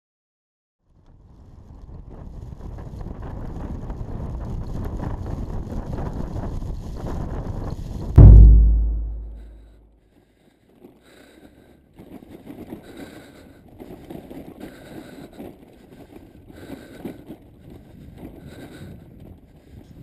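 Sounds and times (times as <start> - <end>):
deep boom: 8.2 - 9.5.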